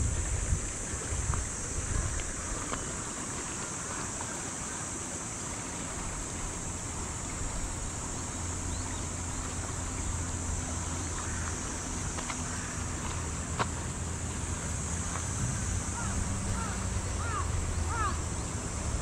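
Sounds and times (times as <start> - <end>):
wind on microphone: 0.0 - 3.2
river water rippling: 0.0 - 19.0
steady high-pitched hiss: 0.0 - 19.0.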